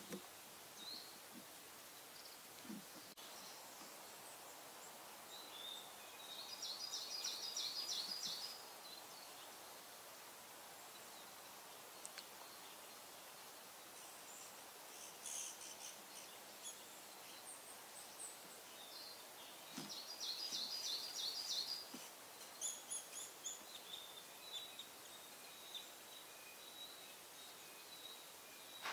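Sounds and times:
songbirds singing: 0.0s - 28.9s
faint high bird calls: 13.9s - 28.9s.

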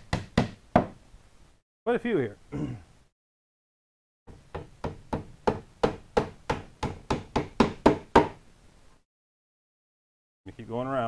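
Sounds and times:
hammer tapping nails: 4.5s - 8.4s.

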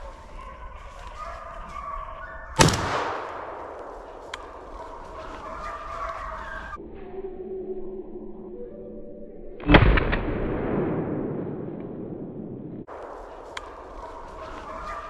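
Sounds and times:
hounds baying: 0.0s - 2.6s, 3.7s - 6.8s, 13.2s - 15.0s
gunshot echoing: 2.6s - 5.0s, 9.6s - 15.0s.

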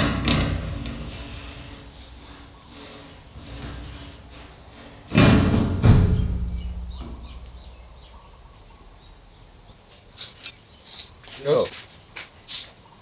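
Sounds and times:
loud ringing knocks: 5.2s - 7.4s.

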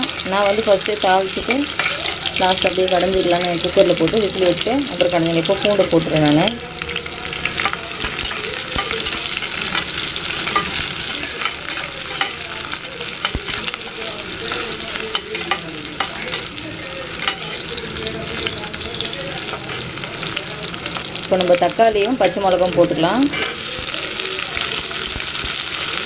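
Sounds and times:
garlic sizzling in hot oil: 0.0s - 26.0s
metal spoon scraping a pot: 0.1s - 2.7s.

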